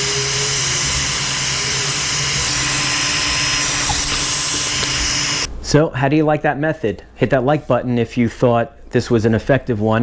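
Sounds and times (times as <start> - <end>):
heat gun blowing hot air: 0.0 - 5.5.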